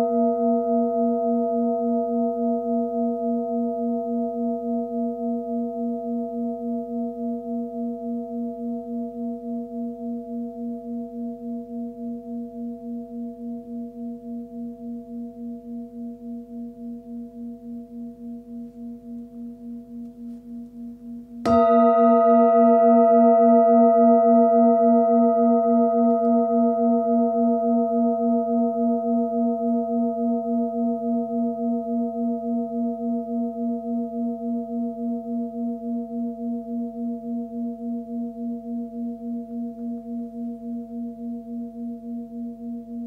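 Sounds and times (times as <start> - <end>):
singing bowl ringing: 0.0 - 43.0
singing bowl strike: 14.3 - 43.0.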